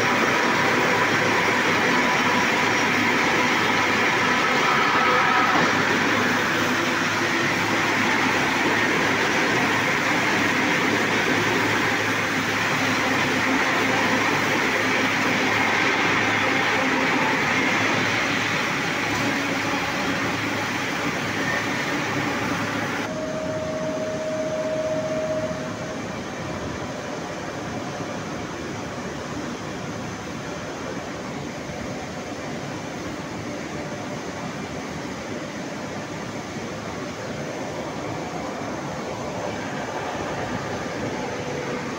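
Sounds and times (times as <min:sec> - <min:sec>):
machinery low hum: 0:00.0 - 0:41.9
rolling mill machinery hiss: 0:00.0 - 0:41.9
single steady tone: 0:23.1 - 0:26.4.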